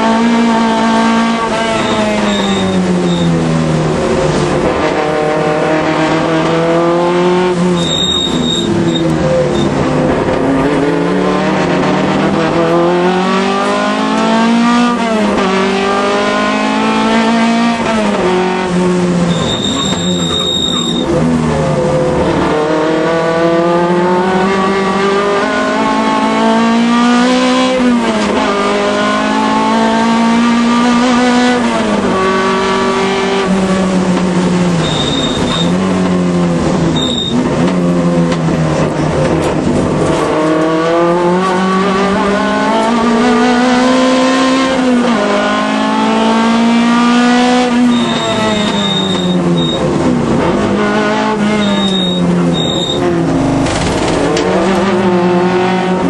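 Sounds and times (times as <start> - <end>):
race car engine revving: 0.0 - 56.0
tyre squeals: 1.6 - 3.4, 7.6 - 9.8, 19.3 - 21.2, 34.8 - 35.8, 36.9 - 37.5, 47.7 - 49.9, 51.4 - 53.2.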